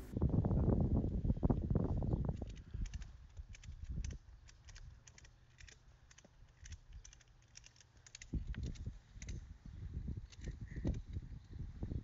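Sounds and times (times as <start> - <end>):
low steady hum: 0.0 - 2.4.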